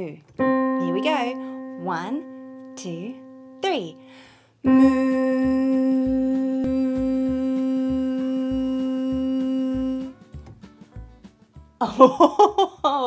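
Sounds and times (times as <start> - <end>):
soft low beat: 0.4 - 3.9, 4.7 - 10.4
woman singing a long note: 0.6 - 10.1.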